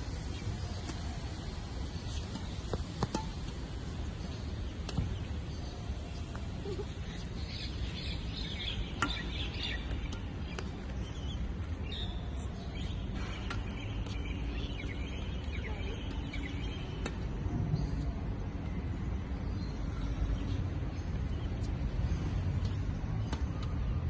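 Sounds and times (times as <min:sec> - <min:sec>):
steady low rumble: 0:00.0 - 0:24.0
small birds chirping: 0:06.4 - 0:17.2.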